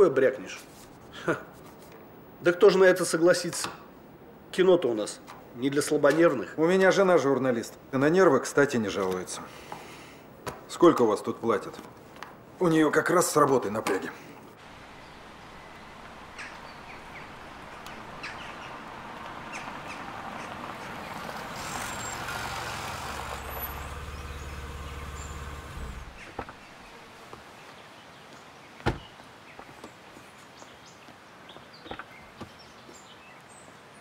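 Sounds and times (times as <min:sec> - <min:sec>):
outdoor background noise: 0:00.0 - 0:34.0
vehicle engine humming: 0:14.6 - 0:27.0
bird chirps: 0:14.9 - 0:18.8, 0:23.4 - 0:27.0.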